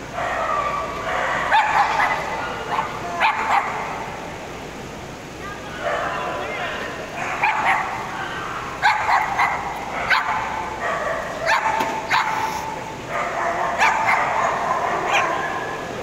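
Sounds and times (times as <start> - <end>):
background murmur: 0.0 - 16.0
dogs barking: 0.1 - 4.2, 5.8 - 6.4, 7.1 - 15.9.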